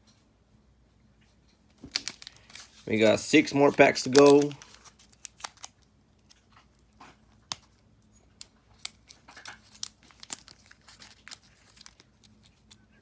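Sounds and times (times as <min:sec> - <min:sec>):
foil pack crinkling and tearing: 0:01.8 - 0:07.6, 0:08.7 - 0:13.0.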